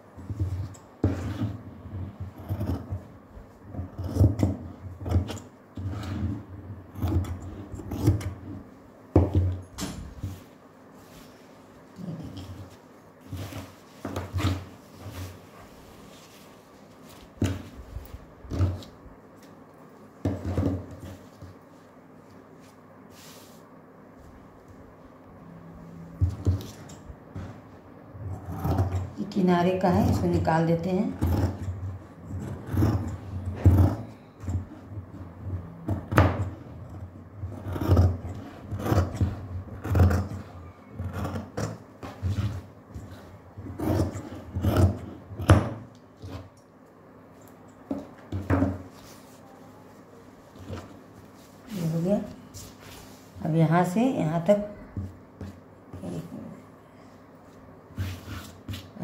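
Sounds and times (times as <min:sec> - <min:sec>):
fabric rustling: 0:10.3 - 0:18.3
scissors cutting cloth: 0:37.5 - 0:41.8.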